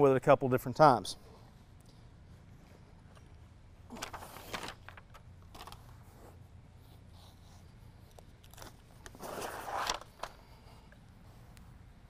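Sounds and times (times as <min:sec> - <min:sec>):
carpet rustling and scraping: 0:04.0 - 0:10.4.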